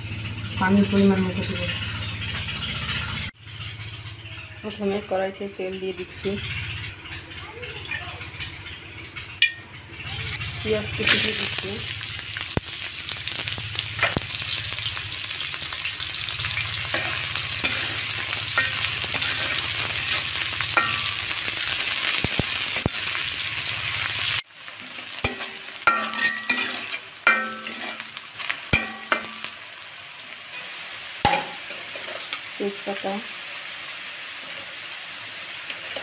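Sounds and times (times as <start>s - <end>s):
onions sizzling in oil: 0.0s - 36.0s
metal spatula scraping pan: 15.3s - 29.5s.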